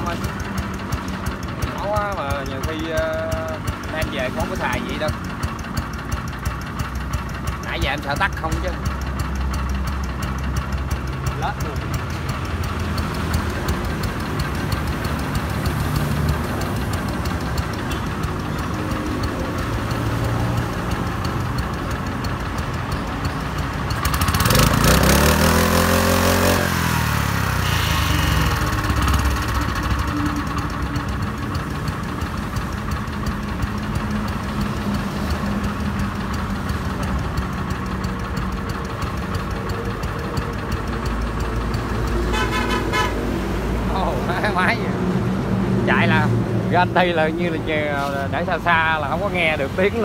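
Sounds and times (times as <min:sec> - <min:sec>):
small petrol engine idling: 0:00.0 - 0:50.0
louder engine rising in pitch: 0:24.0 - 0:32.0.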